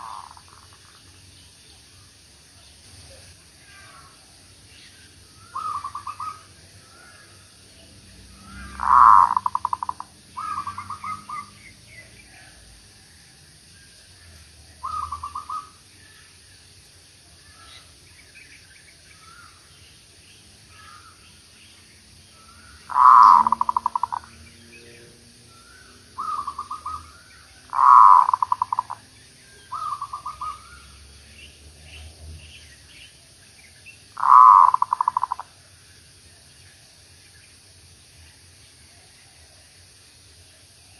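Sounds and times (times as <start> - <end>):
dove cooing: 0.0 - 0.8, 5.4 - 7.2, 8.4 - 11.6, 14.8 - 15.8, 22.4 - 24.3, 25.0 - 29.0, 29.7 - 30.9, 34.2 - 35.5
faint bird chirps: 0.0 - 39.7.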